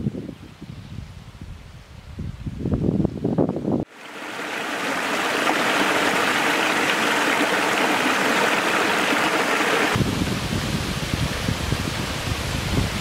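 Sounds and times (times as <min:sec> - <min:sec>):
stream rushing over rocks: 0:03.9 - 0:13.0.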